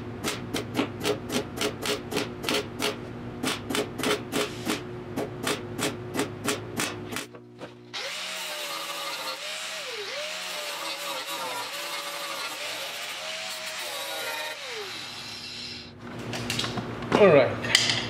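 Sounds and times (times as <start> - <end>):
angle grinder whine: 8.0 - 16.0.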